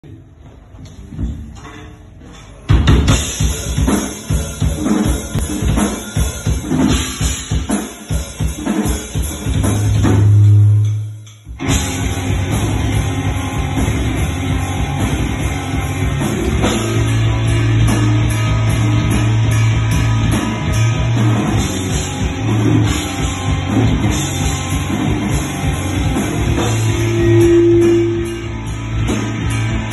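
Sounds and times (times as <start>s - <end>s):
fast drumming on drum kit: 2.7s - 29.9s
heavy metal band playing: 2.7s - 29.9s
held low note: 26.4s - 29.9s.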